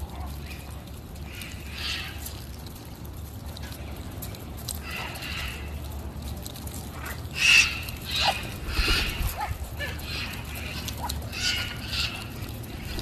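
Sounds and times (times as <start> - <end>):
macaws squawking: 7.4 - 13.0.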